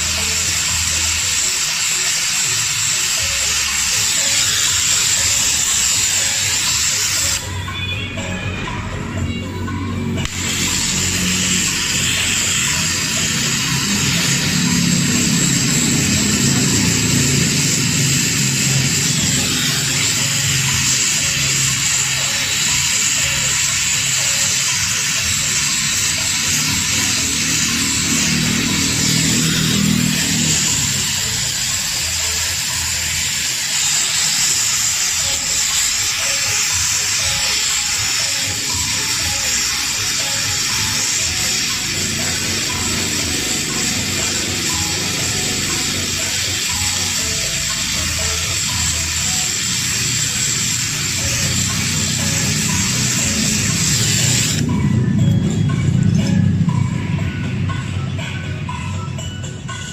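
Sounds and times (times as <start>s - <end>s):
welding torch flame hissing: 0.0s - 7.5s, 10.1s - 54.8s
faint music: 0.0s - 59.9s.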